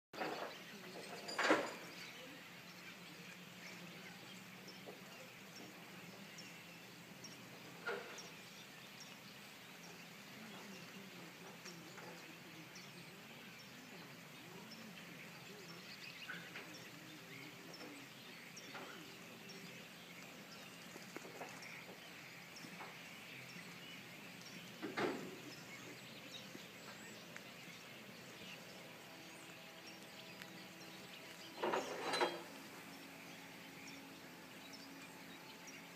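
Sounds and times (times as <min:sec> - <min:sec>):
starlings chattering: 0:00.2 - 0:35.9.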